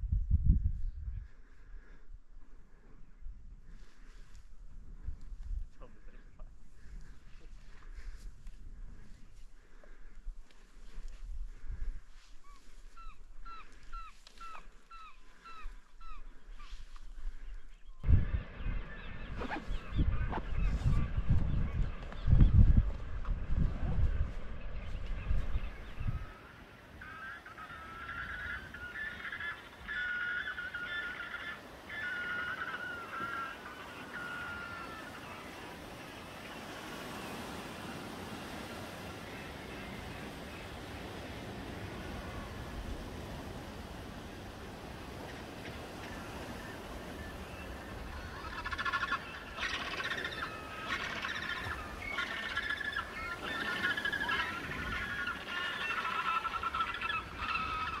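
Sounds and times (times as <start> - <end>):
wind and surf rumble: 0.0 - 58.0
penguins braying calls: 27.0 - 35.6, 45.8 - 58.0.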